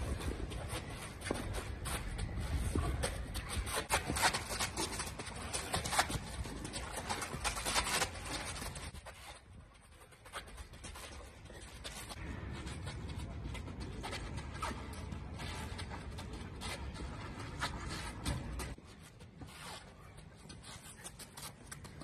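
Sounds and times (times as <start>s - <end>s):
footwork scuffs and thuds: 0.0s - 22.0s.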